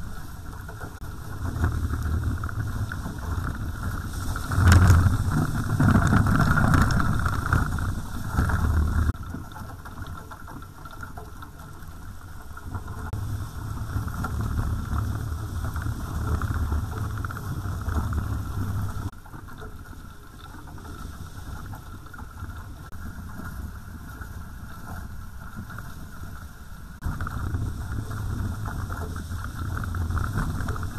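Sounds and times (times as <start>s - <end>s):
wind buffeting microphone: 0.0s - 9.2s, 12.7s - 19.2s, 20.8s - 30.9s
water rushing past hulls: 0.0s - 30.9s.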